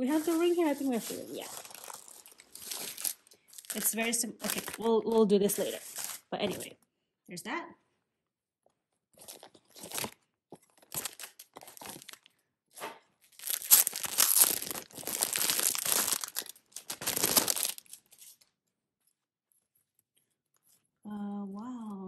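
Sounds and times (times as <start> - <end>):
plastic packaging crinkling: 0.0 - 6.7, 9.2 - 12.4, 13.2 - 18.6.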